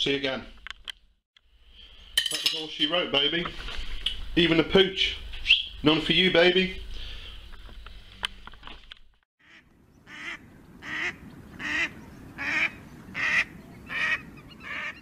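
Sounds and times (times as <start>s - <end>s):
waterfowl honking: 9.4s - 15.0s.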